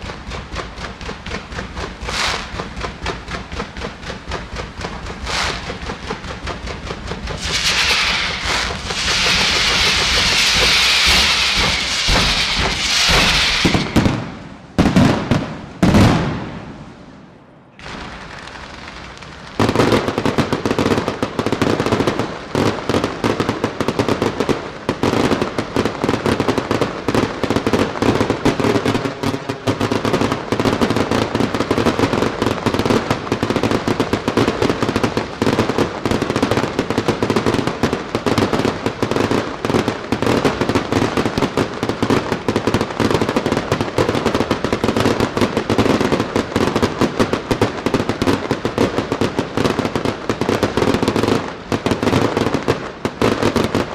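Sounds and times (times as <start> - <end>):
rapid crackling of aerial shells: 0.0 - 14.0
firework fountains hissing: 0.0 - 16.7
heavy firework booms: 0.0 - 17.0, 19.5 - 53.9.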